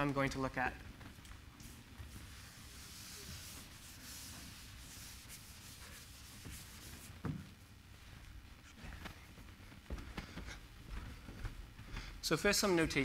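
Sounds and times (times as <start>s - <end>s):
eraser wiping chalkboard: 1.6s - 7.4s.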